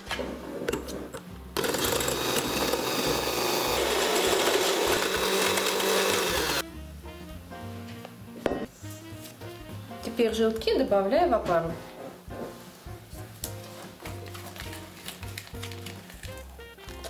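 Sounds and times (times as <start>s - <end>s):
electric mixer beating: 1.6s - 6.6s.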